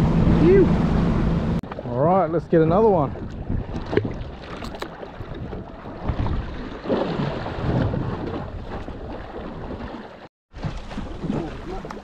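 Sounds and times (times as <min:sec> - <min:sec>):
wind buffeting microphone: 0:00.0 - 0:06.6
water washing against boat: 0:00.0 - 0:12.0.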